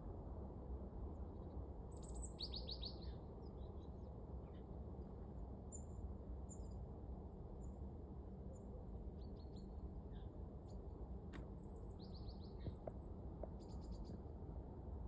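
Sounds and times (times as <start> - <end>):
low background rumble: 3.0 - 15.0
songbirds chirping: 8.6 - 14.6.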